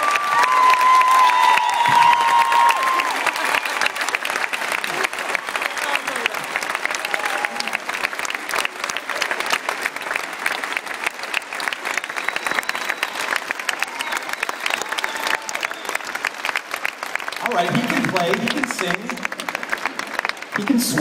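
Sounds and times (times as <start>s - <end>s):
large audience applauding: 0.0s - 21.0s.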